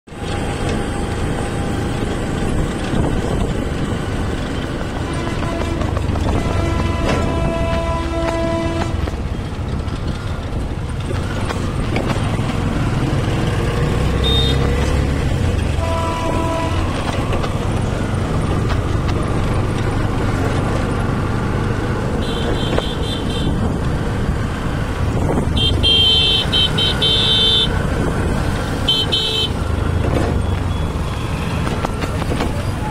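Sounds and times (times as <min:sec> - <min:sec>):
road and traffic noise: 0:00.0 - 0:32.9
auto rickshaw engine running: 0:00.1 - 0:32.9
vehicle horns beeping: 0:04.9 - 0:09.1, 0:14.0 - 0:15.0, 0:15.6 - 0:17.4, 0:22.1 - 0:23.8, 0:25.5 - 0:27.9, 0:28.8 - 0:29.8.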